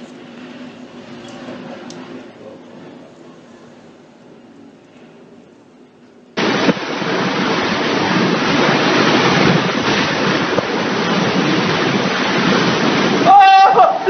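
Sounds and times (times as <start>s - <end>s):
wind blasting against microphone: 6.4s - 14.0s.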